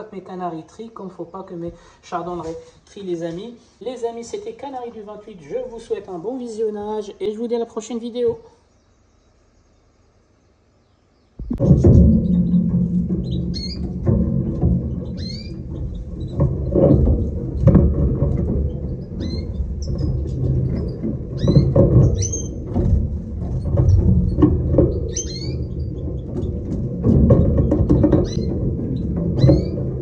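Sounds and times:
steady low hum: 11.4 - 30.0
finches chirping: 19.2 - 22.6, 25.1 - 26.1.

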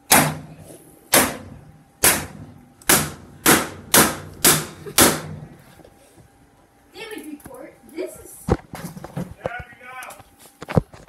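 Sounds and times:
bat banging on washing machine: 0.1 - 0.5, 1.1 - 5.4.

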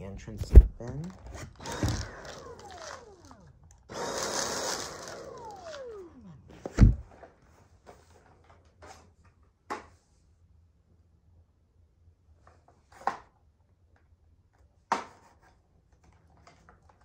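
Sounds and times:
heavy thump: 0.4 - 2.3, 6.6 - 7.0
vacuum motor whine: 0.4 - 7.4.

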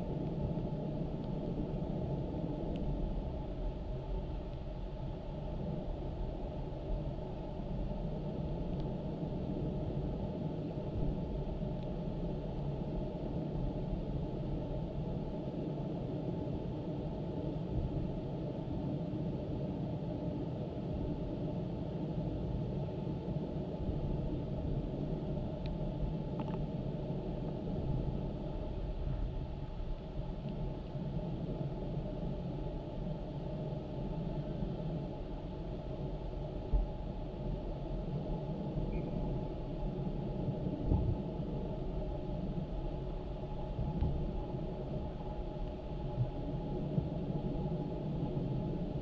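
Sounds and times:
muffled low rumbling noise: 0.0 - 49.0.

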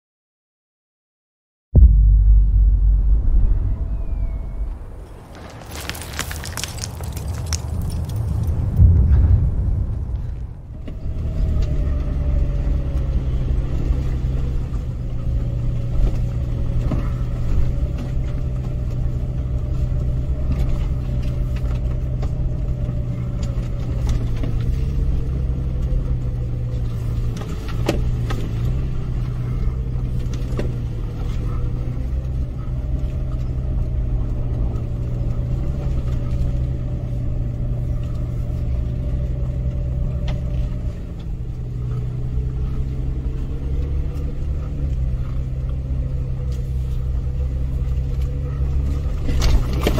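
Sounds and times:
low engine drone: 1.8 - 5.5, 8.2 - 49.9
faint whine: 1.8 - 6.0.

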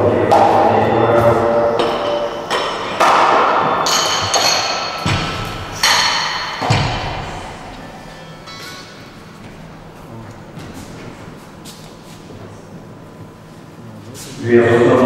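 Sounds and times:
barbell plates clanking: 0.3 - 9.3.

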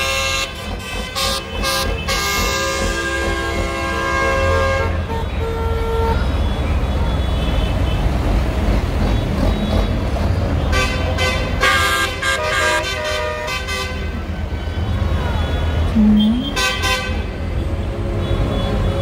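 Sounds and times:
horns tooting: 0.0 - 19.0
tractor engines rumbling: 0.0 - 19.0.

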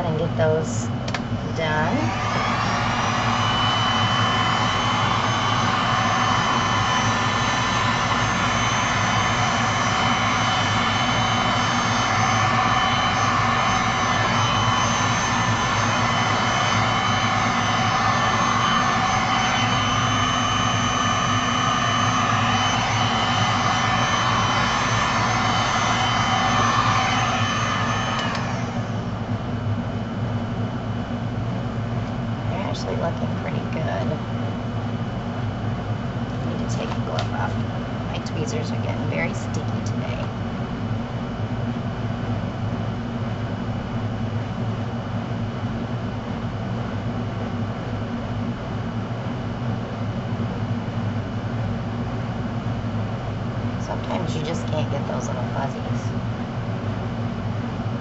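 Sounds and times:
heat gun blowing with whine: 1.7 - 29.3.

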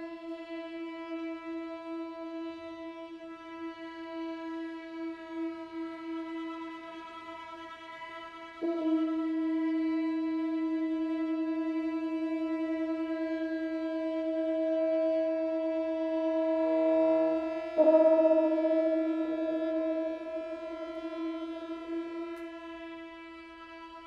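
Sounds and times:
strings playing: 0.0 - 24.0
muted trombone note: 8.6 - 11.5, 12.9 - 23.0.

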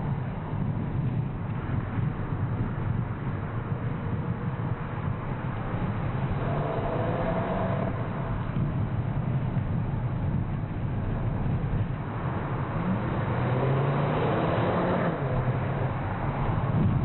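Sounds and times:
tyre and wind road noise: 0.0 - 17.0.

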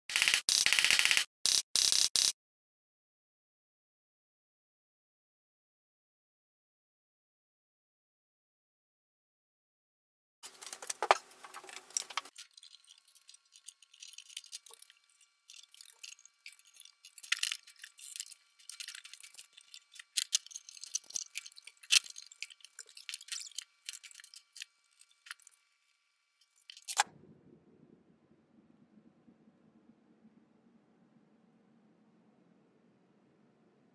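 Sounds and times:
screws and tools clinking: 11.5 - 25.6, 26.4 - 27.0.

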